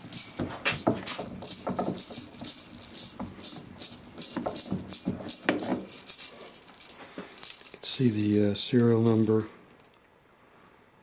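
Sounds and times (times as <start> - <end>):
metal gun parts clicking and rattling: 0.0 - 8.1.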